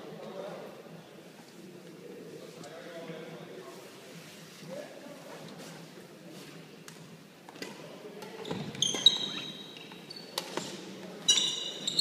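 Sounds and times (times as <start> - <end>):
shoes squeaking on wooden floor: 8.3 - 12.0.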